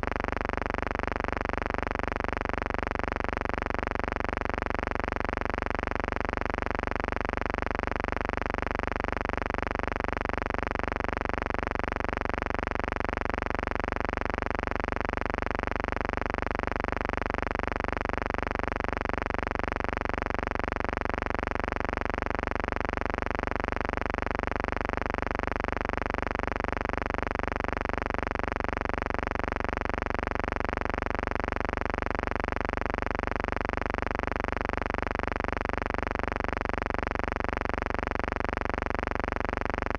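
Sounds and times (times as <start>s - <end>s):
buzzing hum: 0.0s - 6.7s, 27.9s - 39.9s.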